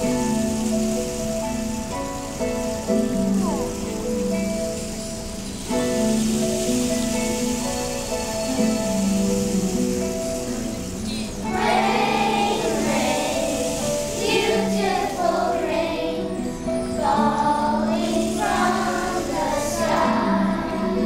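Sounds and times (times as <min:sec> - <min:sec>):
instrumental accompaniment: 0:00.0 - 0:21.0
children's choir singing: 0:10.0 - 0:21.0.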